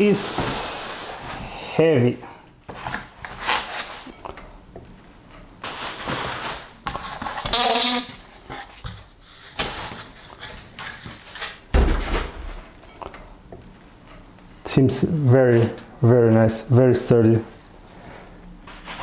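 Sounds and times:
cardboard rustling and scraping: 5.6s - 11.6s.

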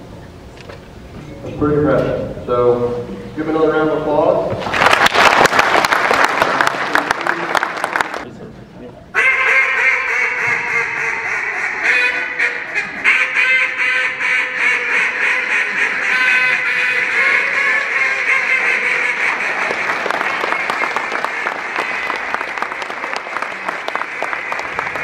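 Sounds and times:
people clapping: 4.6s - 8.3s, 18.4s - 25.0s
duck calls quacking: 9.2s - 20.0s.

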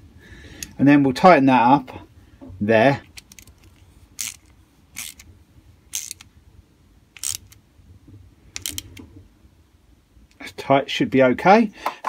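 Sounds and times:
socket ratchet clicking: 3.1s - 5.3s, 5.9s - 6.3s, 7.2s - 7.6s, 8.6s - 9.0s.

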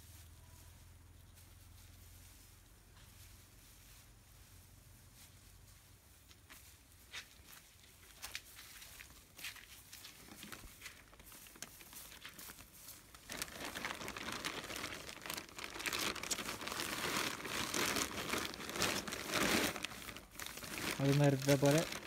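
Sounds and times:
straw rustling: 6.4s - 22.0s
plastic bag crinkling: 10.1s - 22.0s.

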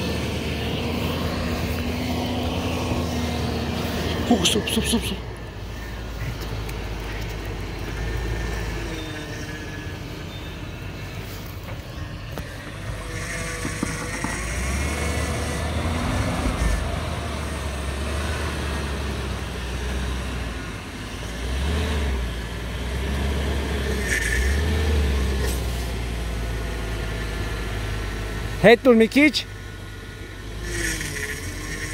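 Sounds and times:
suv engine working at low speed: 0.0s - 31.9s.

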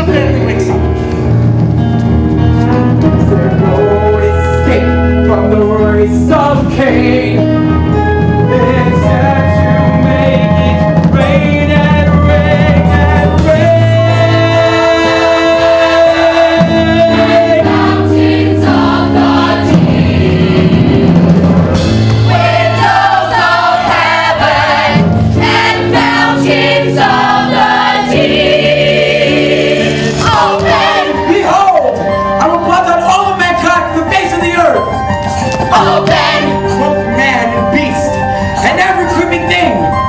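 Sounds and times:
musical accompaniment: 0.0s - 40.0s
choir singing: 3.2s - 31.6s, 35.7s - 37.0s.

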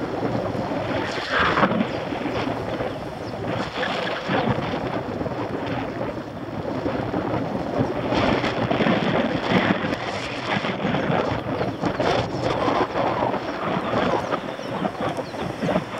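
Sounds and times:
wind buffeting microphone: 0.0s - 15.9s.

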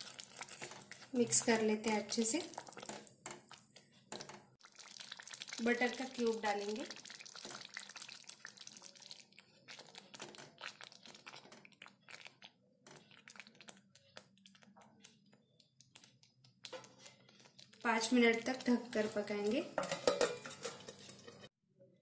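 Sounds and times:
spatula scraping pan: 0.0s - 4.4s, 16.0s - 21.5s
wet squelches of stirring mash: 0.0s - 21.5s.

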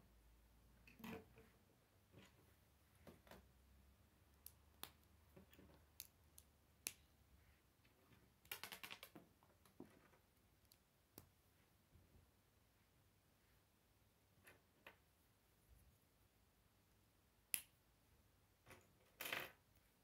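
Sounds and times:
plastic construction pieces clicking: 8.4s - 9.2s.

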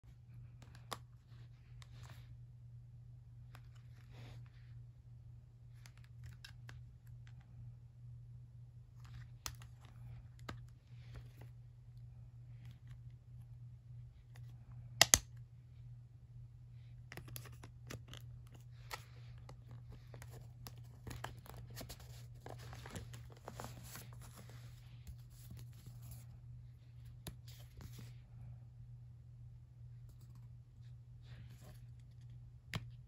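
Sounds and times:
steady low hum: 0.0s - 33.0s
small clicks and scratches: 5.7s - 7.6s, 9.0s - 13.2s, 17.0s - 26.4s
paper booklet rustling: 17.2s - 28.2s.

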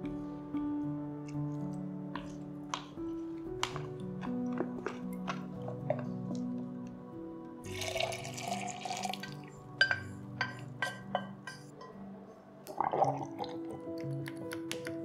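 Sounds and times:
background music: 0.0s - 15.0s
liquid pouring into jug: 7.7s - 9.3s.

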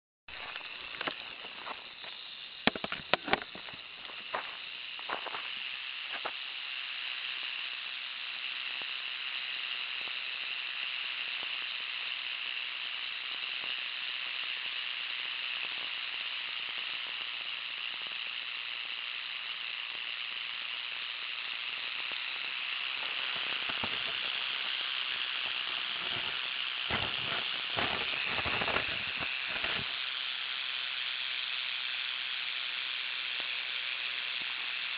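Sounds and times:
rattlesnake tail rattle buzzing: 0.3s - 34.9s
sharp clicks and knocks: 0.4s - 6.4s, 25.4s - 29.9s.

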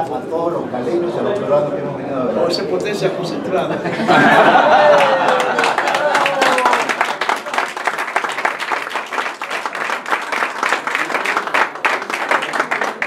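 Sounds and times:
crowd applauding: 4.1s - 13.0s.

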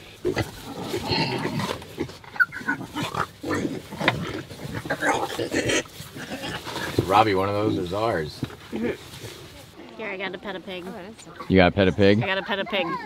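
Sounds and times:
pigs grunting: 0.0s - 9.5s.

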